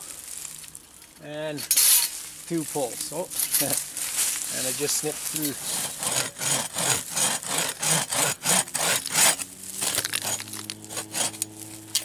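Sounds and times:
hand saw cutting stick: 4.6 - 12.0.

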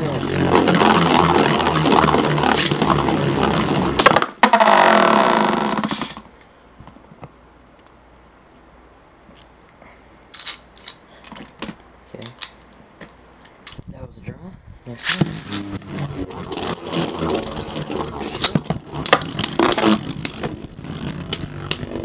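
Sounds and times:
spinning tops whirring and scraping: 0.0 - 6.3, 15.0 - 22.0.

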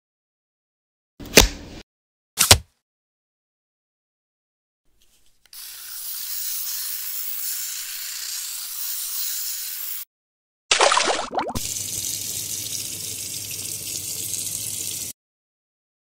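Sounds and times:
electric shaver cutting fur: 5.5 - 10.1
water splashing and bubbling: 10.7 - 11.7.

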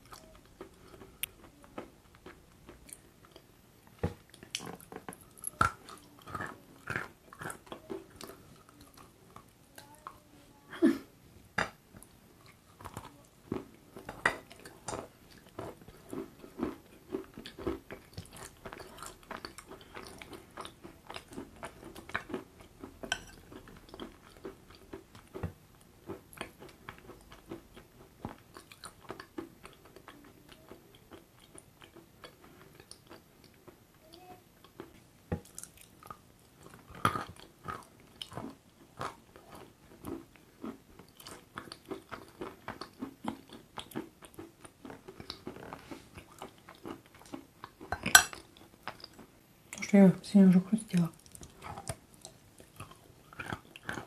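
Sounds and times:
food crunching: 0.0 - 10.2, 11.6 - 49.8, 51.0 - 54.0
wet chewing: 51.1 - 54.0.

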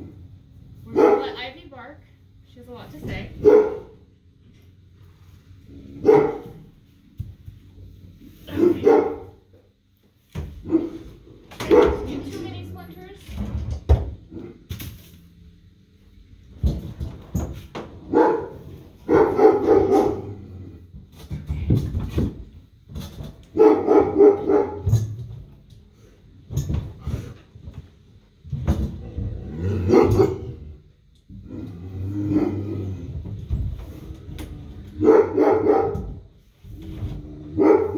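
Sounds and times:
dog barking: 0.9 - 1.4, 3.4 - 4.0, 6.0 - 6.6, 8.5 - 9.4, 10.6 - 11.0, 11.6 - 12.1, 18.1 - 20.4, 23.5 - 24.9, 29.9 - 30.5, 35.0 - 36.2, 37.6 - 37.9.

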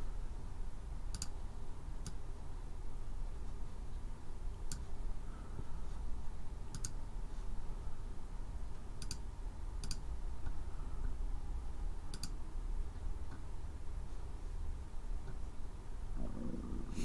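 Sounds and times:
steady low hum: 0.0 - 17.0
computer mouse clicking: 1.1 - 1.4, 4.6 - 4.9, 6.7 - 7.0, 9.0 - 10.6, 12.1 - 12.4.

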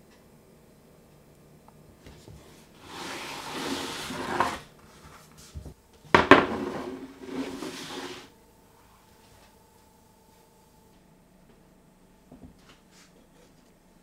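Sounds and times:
metal tray scraping on wood: 2.8 - 4.7, 6.3 - 8.3
knock: 6.2 - 6.7.

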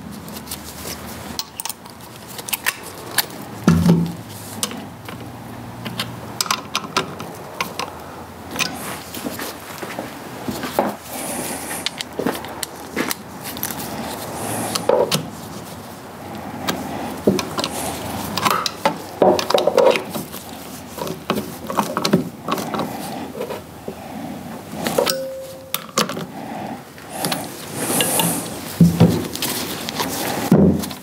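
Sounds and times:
gloved hands rubbing: 10.6 - 18.4, 27.0 - 31.0.

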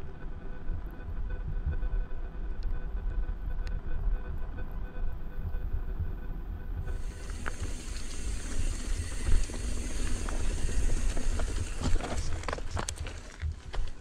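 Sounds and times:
bike tyres on gravel: 6.9 - 14.0.

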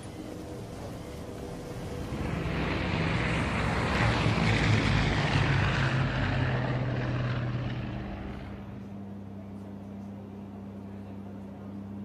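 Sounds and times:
turboprop aircraft passing low: 0.0 - 9.6.

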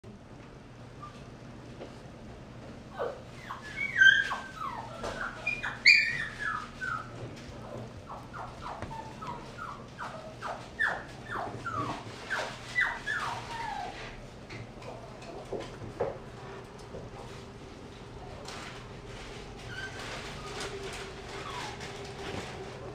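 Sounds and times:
puppy yelping: 2.9 - 7.2, 8.0 - 14.2, 19.6 - 22.0
puppy whimpering: 2.9 - 14.2, 19.6 - 22.5.

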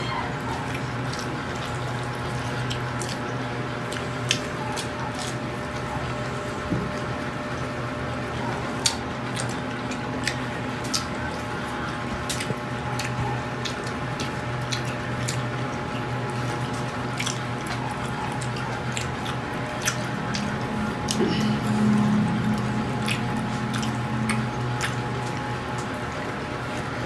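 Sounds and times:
steady low hum: 0.0 - 27.0
wet squishy chewing: 0.0 - 27.0.

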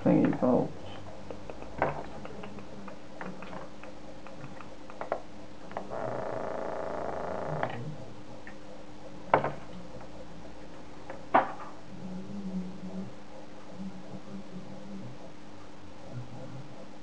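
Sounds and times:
geiger counter clicking: 0.2 - 8.7.

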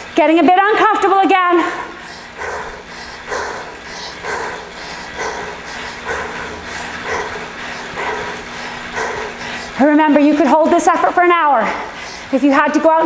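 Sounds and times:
heavy rhythmic breathing: 0.0 - 13.0.

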